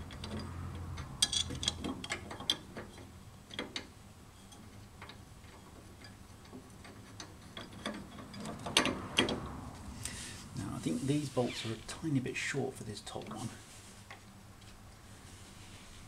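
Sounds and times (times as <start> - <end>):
small metallic clicks: 0.0 - 3.9.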